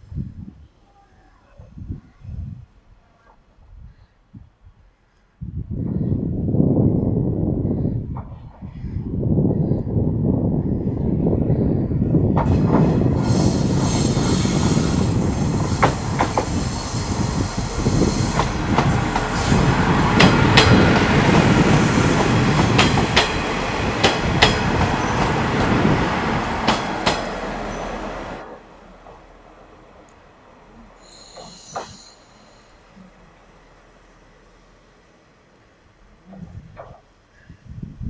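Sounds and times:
railcar engine rumble: 0:04.7 - 0:38.0
high thin squeal: 0:16.0 - 0:17.4, 0:31.0 - 0:32.8.

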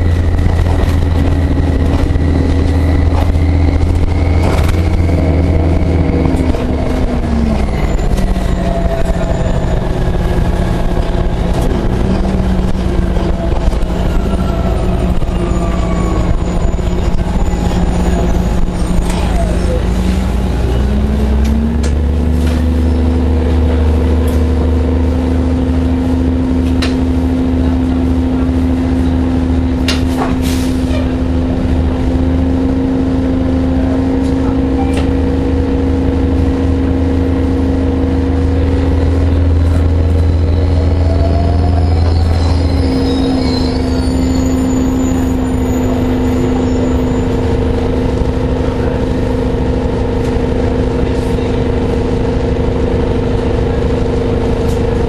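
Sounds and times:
bus engine drone: 0:00.0 - 0:55.0.

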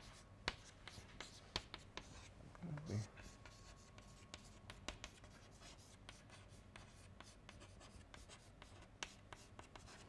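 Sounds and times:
chalk writing on blackboard: 0:00.0 - 0:10.0.

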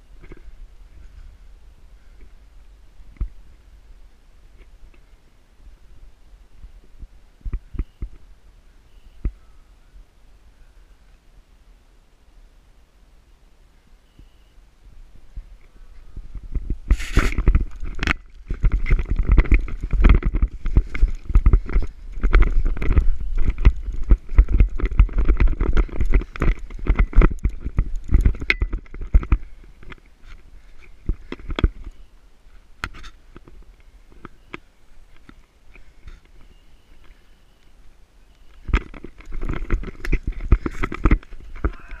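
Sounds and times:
microphone handling rumble: 0:14.9 - 0:32.0, 0:38.6 - 0:42.0
footsteps through brush: 0:15.2 - 0:42.0
vegetation scraping microphone: 0:16.1 - 0:29.6.

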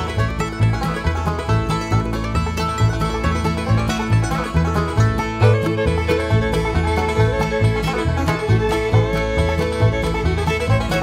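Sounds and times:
picked banjo: 0:00.0 - 0:11.0.

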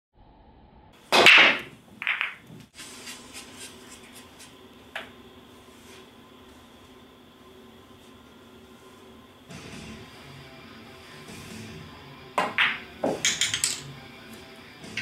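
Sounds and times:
pool balls crashing on break: 0:01.1 - 0:02.6, 0:12.4 - 0:13.9
pool balls clicking: 0:01.1 - 0:02.7, 0:12.4 - 0:14.0.

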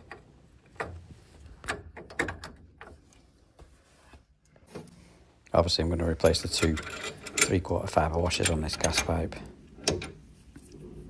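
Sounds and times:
clicks and knocks of parts: 0:00.0 - 0:03.3, 0:06.5 - 0:07.6, 0:08.3 - 0:10.8.

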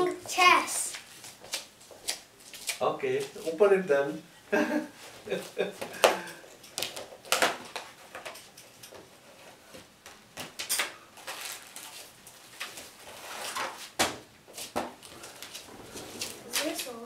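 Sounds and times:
plastic bag rustling: 0:11.2 - 0:14.0, 0:15.0 - 0:17.0
cardboard scraping: 0:12.7 - 0:14.0, 0:15.2 - 0:17.0.

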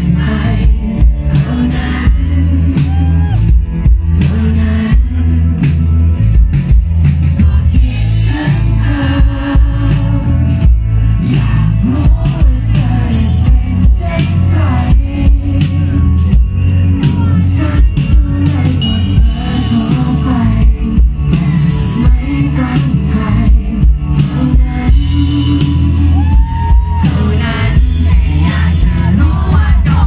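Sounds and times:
pop-rock band playing: 0:00.0 - 0:30.0
woman singing: 0:17.0 - 0:30.0.

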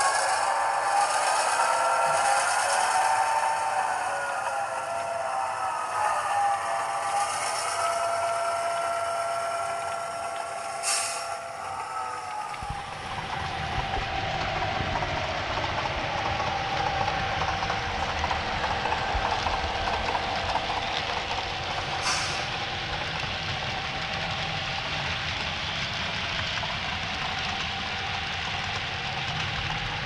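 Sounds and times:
model diesel locomotive engine: 0:00.0 - 0:30.0
model wheels running on rails: 0:00.0 - 0:30.0
brief hiss: 0:10.8 - 0:11.3, 0:22.0 - 0:22.5.

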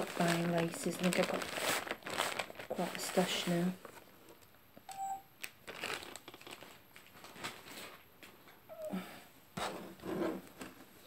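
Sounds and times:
lace rustling and crinkling: 0:00.0 - 0:04.6, 0:05.4 - 0:08.5.

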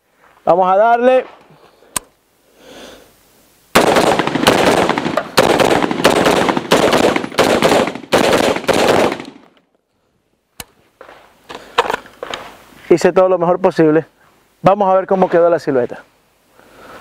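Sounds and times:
rifle shots with echo: 0:03.8 - 0:09.5.

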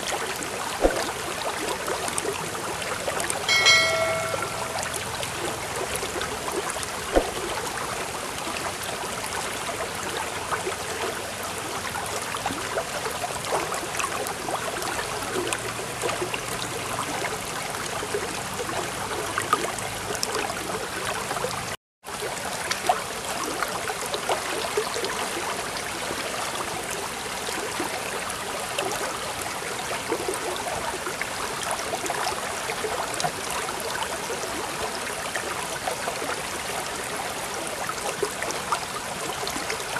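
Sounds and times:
stream babbling over stones: 0:00.0 - 0:05.3.

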